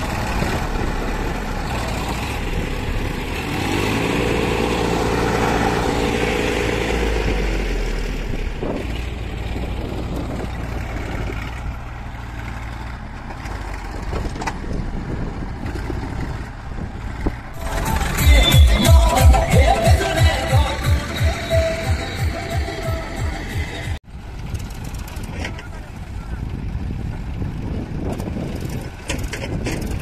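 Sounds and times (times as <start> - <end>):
tractor diesel engine running: 0.0 - 30.0
music with strong beat: 17.6 - 24.0.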